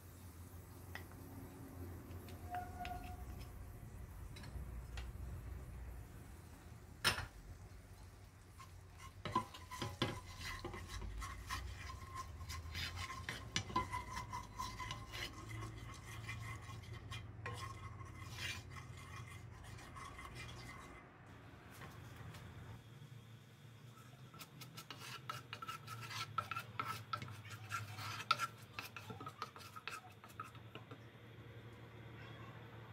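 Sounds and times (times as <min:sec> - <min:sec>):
spatula scraping a frying pan: 0:02.1 - 0:03.6, 0:08.4 - 0:21.1, 0:24.0 - 0:31.0.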